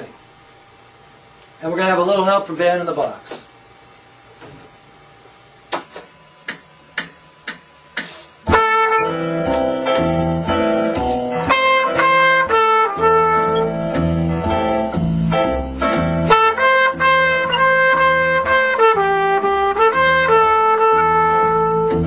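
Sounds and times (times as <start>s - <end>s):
backing track with drums and bass: 6.5s - 22.0s.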